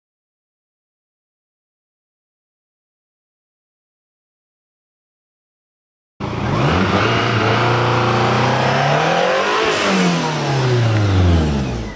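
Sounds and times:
car engine revving: 0:06.2 - 0:11.9.

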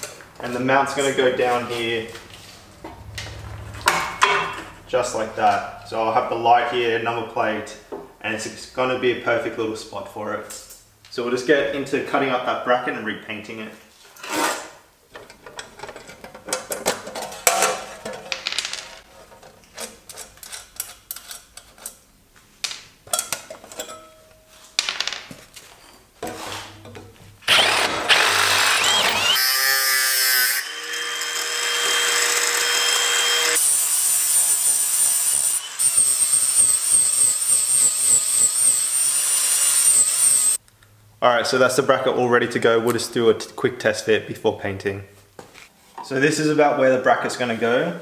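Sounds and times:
metal bracket clanking: 0:23.1 - 0:24.2
angle grinder cutting metal: 0:27.5 - 0:40.6.

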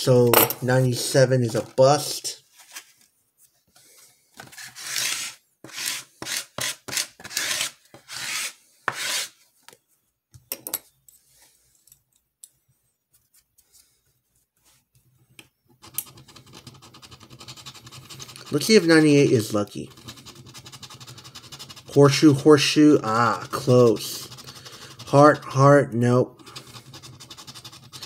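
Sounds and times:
scratching lottery tickets: 0:15.8 - 0:28.0.

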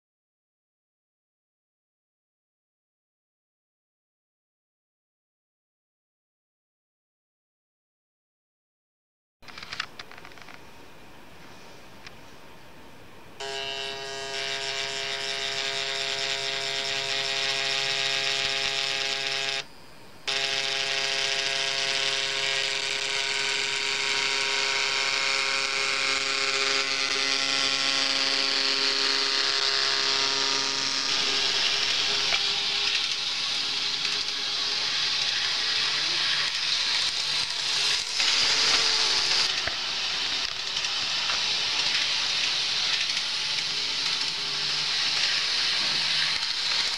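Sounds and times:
model train motor humming: 0:13.4 - 0:46.9.

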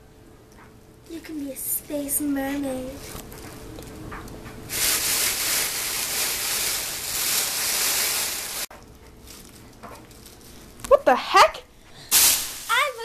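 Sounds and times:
foil blanket crinkling: 0:04.7 - 0:11.0, 0:12.1 - 0:13.0.

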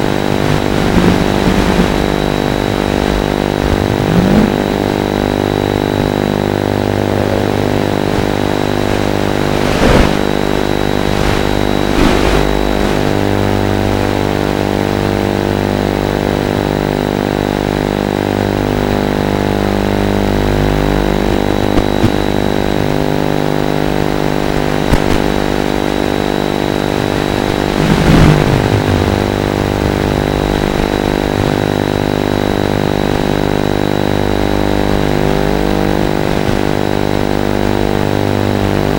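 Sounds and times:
quadcopter buzzing whine: 0:00.0 - 0:09.5, 0:25.2 - 0:33.5.

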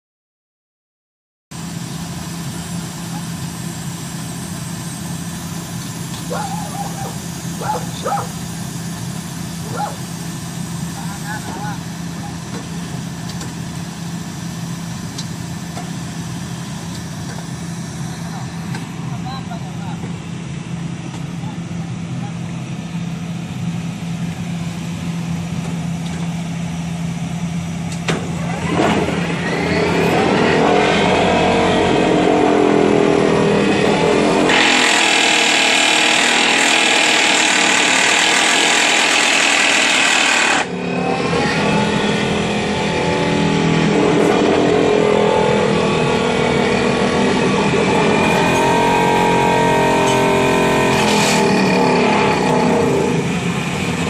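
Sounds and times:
diesel engine humming: 0:01.5 - 0:54.0
hydraulic vibro hammer vibrating: 0:33.8 - 0:54.0.

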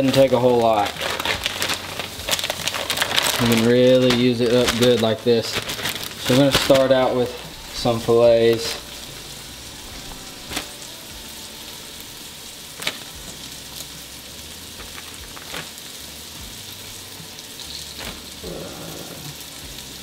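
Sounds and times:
fish dropped into plastic bag: 0:00.0 - 0:08.9, 0:12.8 - 0:13.4, 0:14.8 - 0:15.8, 0:18.0 - 0:18.3
stovetop hiss: 0:00.0 - 0:20.0.

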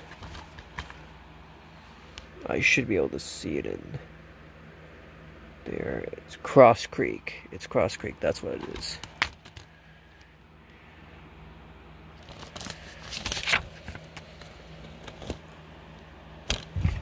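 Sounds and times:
plastic case rustling: 0:00.0 - 0:01.1, 0:08.5 - 0:09.8, 0:12.2 - 0:15.6.

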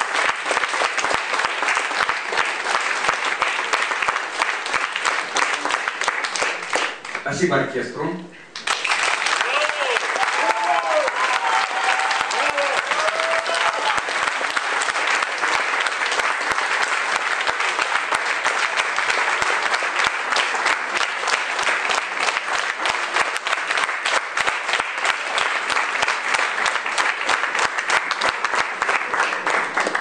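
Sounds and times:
audience applause: 0:00.0 - 0:07.4, 0:08.5 - 0:30.0.

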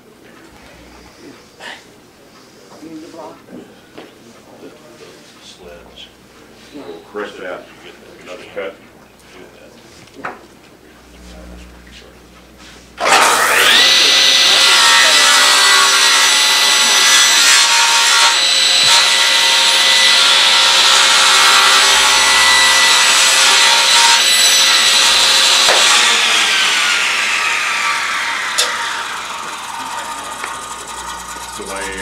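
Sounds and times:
table saw whining: 0:00.4 - 0:01.6, 0:11.0 - 0:32.0.

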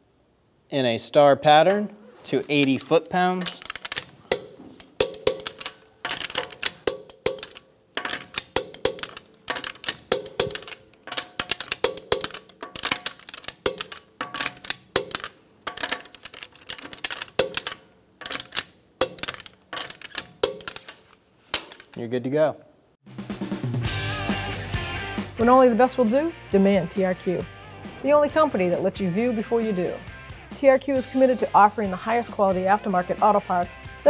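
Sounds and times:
torque wrench clicking: 0:02.3 - 0:22.0.

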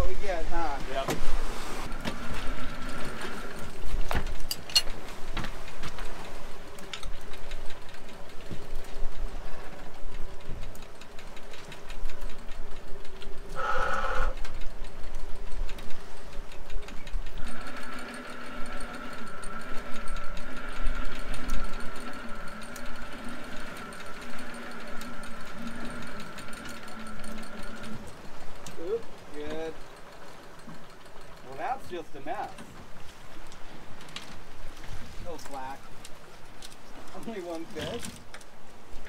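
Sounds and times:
wavering low hum: 0:00.8 - 0:31.4
mechanical whirring with ticking: 0:01.8 - 0:39.0
high steady whine: 0:17.3 - 0:29.4.

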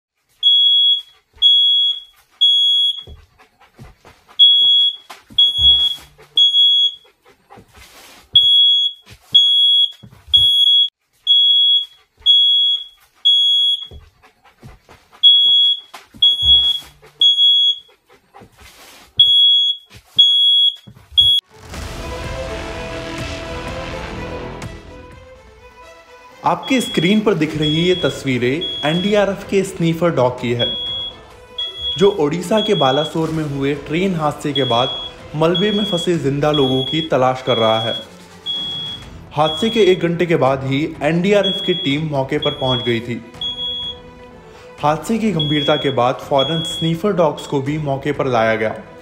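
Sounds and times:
electronic alarm beeping: 0:00.4 - 0:03.1, 0:04.4 - 0:07.0, 0:08.4 - 0:13.9, 0:15.2 - 0:17.9, 0:19.2 - 0:21.4, 0:26.6 - 0:29.4, 0:30.6 - 0:33.2, 0:34.5 - 0:39.9, 0:41.4 - 0:44.0, 0:45.4 - 0:47.5
background music: 0:02.4 - 0:07.9, 0:21.4 - 0:49.0.

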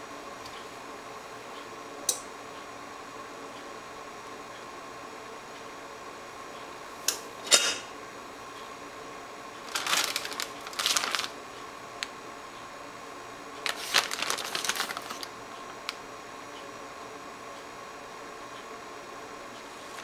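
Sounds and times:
faint steady hum: 0:00.0 - 0:20.0
crackly packet rustling: 0:09.6 - 0:11.4, 0:13.6 - 0:16.0.

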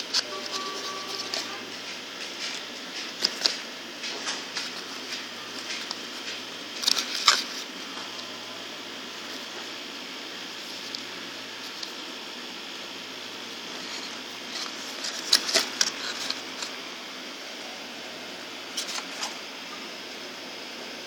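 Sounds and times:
cardboard and paper rustling: 0:00.1 - 0:07.7, 0:13.7 - 0:16.8, 0:18.7 - 0:19.4.

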